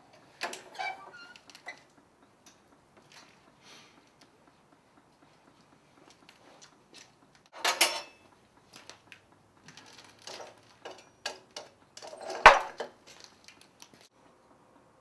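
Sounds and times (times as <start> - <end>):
metal clanking and clinking: 7.5 - 9.0, 9.6 - 13.6.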